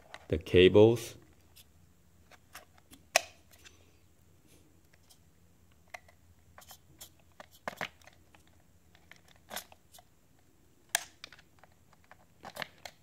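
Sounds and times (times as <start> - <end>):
hands handling plastic drone: 4.8 - 13.0.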